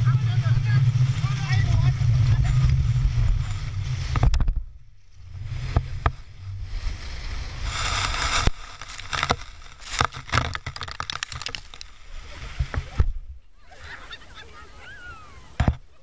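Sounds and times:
low rumble of sliding float: 0.0s - 14.0s
wind on microphone: 0.0s - 14.0s
hiss of spraying snow: 6.6s - 10.0s.

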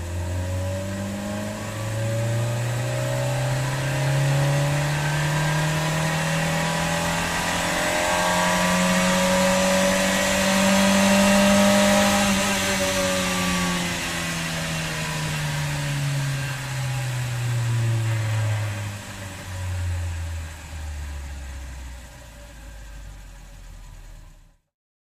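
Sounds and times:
motor drone falling in pitch: 0.0s - 22.0s.

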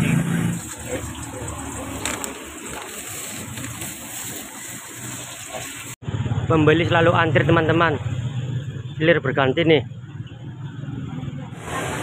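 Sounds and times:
food deep-frying in hot oil: 0.0s - 6.0s.

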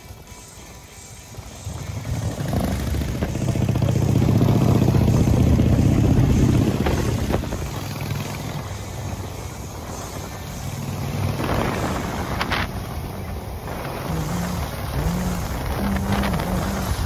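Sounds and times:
motorcycle passing by: 1.6s - 17.0s.

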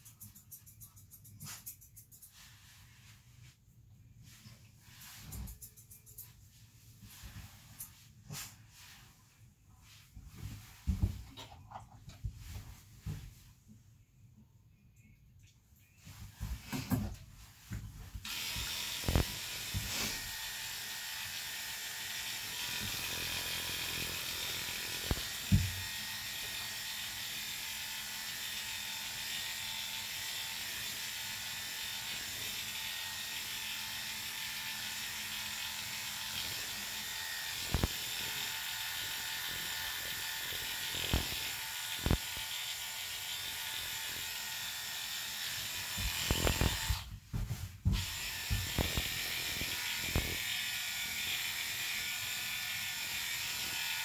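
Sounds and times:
electric clippers running: 18.2s - 47.1s, 47.9s - 54.0s.

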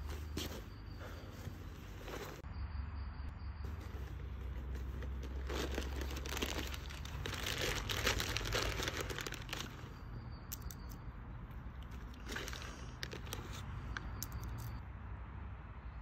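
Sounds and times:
plastic packet crinkling: 4.7s - 9.9s.

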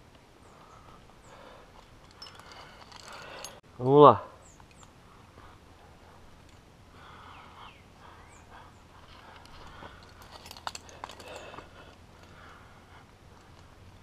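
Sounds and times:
climbing gear clinking: 1.3s - 3.6s, 8.5s - 14.0s.

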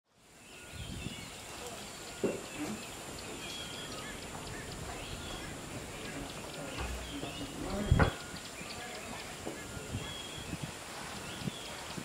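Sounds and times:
birds chirping and calling: 0.2s - 12.0s
short low thud: 6.7s - 8.2s.

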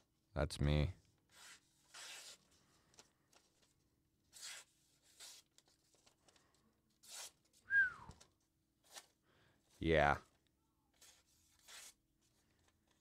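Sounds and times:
knife slicing thin paper: 1.3s - 2.4s, 4.3s - 5.5s, 7.0s - 7.4s, 11.0s - 12.0s.

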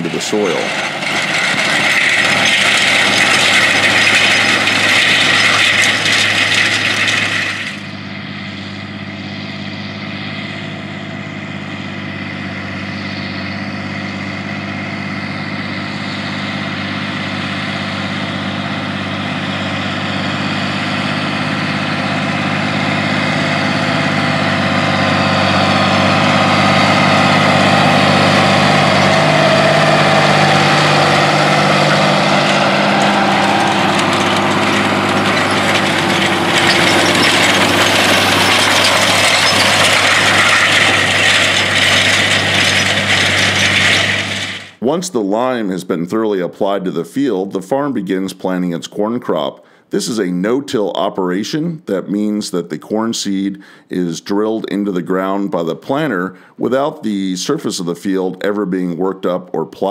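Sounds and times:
harrow scraping over soil: 0.0s - 44.9s
tractor diesel engine droning: 0.0s - 59.9s.

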